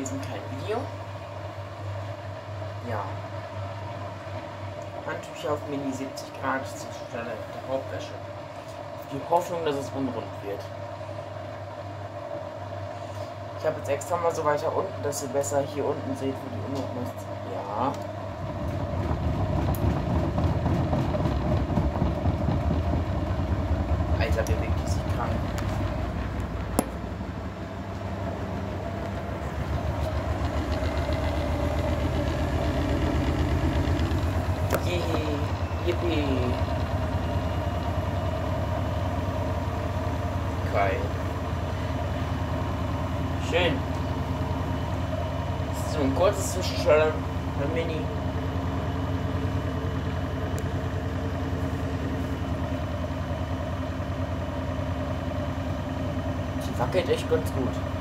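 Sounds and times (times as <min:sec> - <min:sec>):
washing machine drum spinning: 0:17.6 - 0:58.0
rhythmic low thumping: 0:18.5 - 0:38.6.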